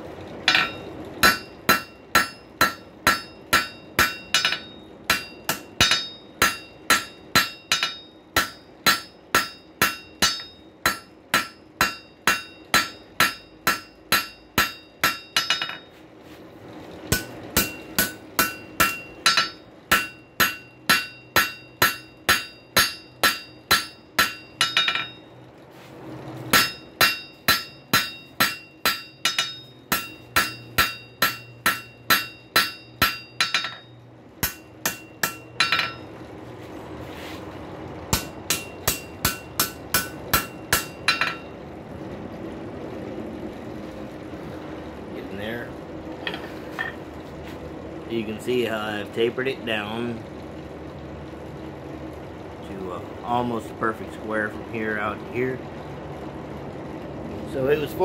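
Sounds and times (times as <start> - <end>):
hammer striking steel on anvil: 0.4 - 16.0, 17.1 - 25.3, 26.5 - 36.2, 38.1 - 41.5.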